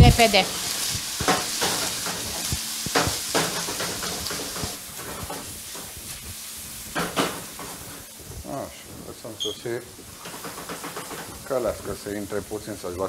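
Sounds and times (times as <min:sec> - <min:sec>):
food frying in hot oil: 0:00.0 - 0:13.0
utensil knocking against pan: 0:07.0 - 0:07.7, 0:10.2 - 0:11.4.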